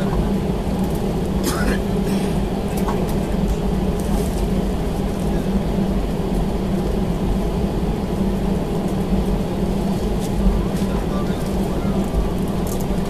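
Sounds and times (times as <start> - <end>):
jet engines droning in cabin: 0.0 - 13.0.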